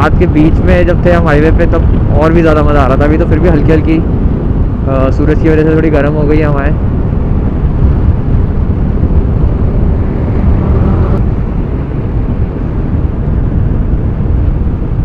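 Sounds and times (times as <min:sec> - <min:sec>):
wind rumble on microphone: 0:00.0 - 0:15.0
motorcycle engine roar: 0:06.2 - 0:15.0.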